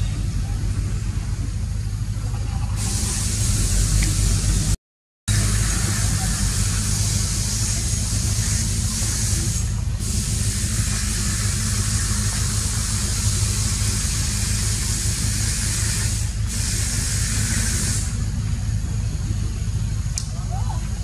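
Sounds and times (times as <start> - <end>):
constant low rumble: 0.0 - 21.0
high hiss: 2.8 - 18.4.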